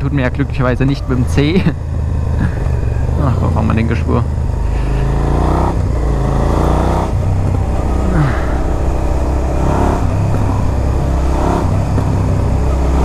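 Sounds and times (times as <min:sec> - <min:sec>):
motorcycle engine changing gear: 0:00.0 - 0:13.0.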